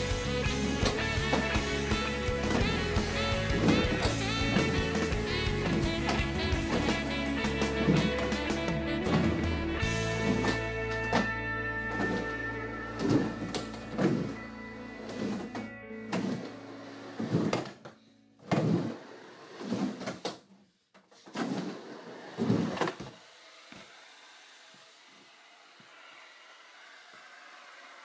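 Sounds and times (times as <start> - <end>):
skateboard wheels rumbling on ramp: 0.0 - 10.8.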